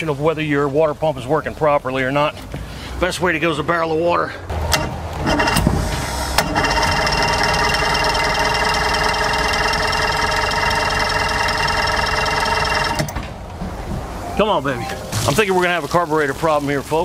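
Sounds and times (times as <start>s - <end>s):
outboard engine electric starter whirring: 4.6s - 13.2s.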